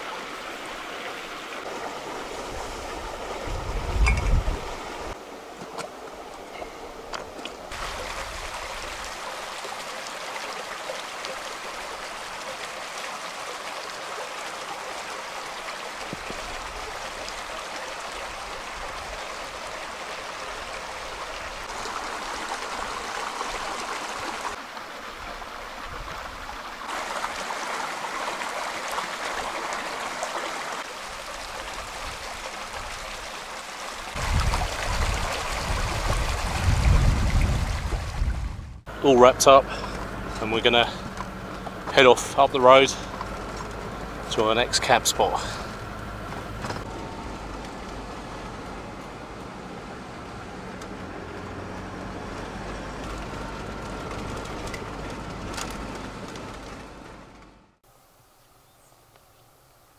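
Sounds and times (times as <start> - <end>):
stream rushing over stones: 0.0 - 49.6.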